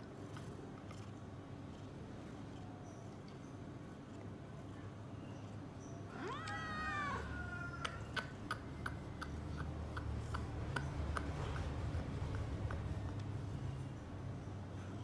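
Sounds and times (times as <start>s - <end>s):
cat meowing: 6.1s - 8.0s.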